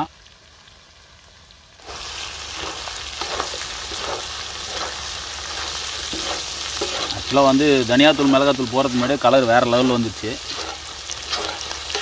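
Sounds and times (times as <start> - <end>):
meat sizzling on griddle: 0.0 - 12.0
metal spatula scraping: 2.5 - 12.0.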